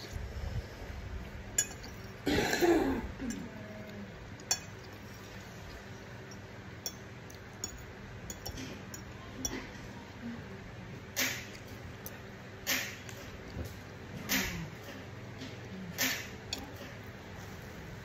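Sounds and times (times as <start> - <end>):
cutlery clinking on ceramic bowl: 6.3 - 9.7.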